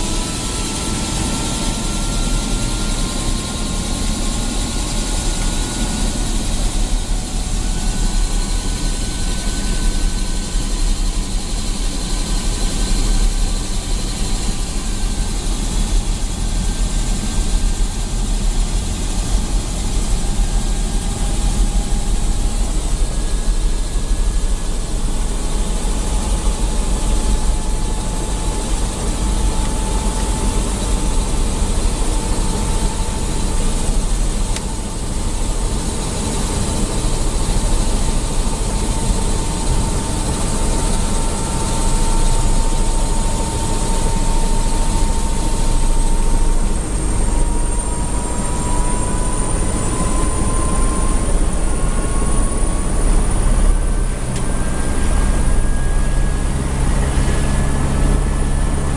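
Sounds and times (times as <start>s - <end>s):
helicopter engine and rotor: 0.0s - 58.9s.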